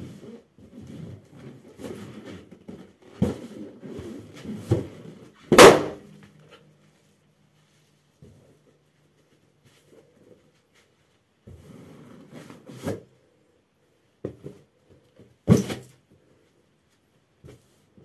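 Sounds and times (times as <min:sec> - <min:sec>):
balloon bursting pop: 0:05.5 - 0:06.0.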